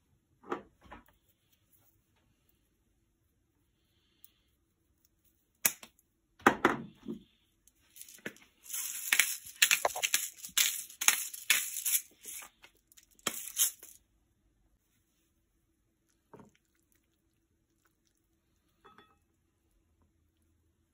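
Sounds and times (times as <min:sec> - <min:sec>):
spice grinder grinding: 0:07.9 - 0:14.0.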